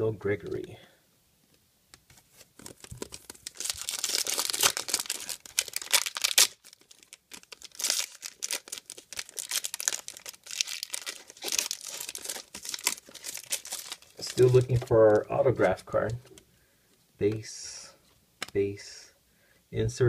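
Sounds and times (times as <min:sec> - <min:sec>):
foil wrapper tearing and crinkling: 0:02.4 - 0:15.2.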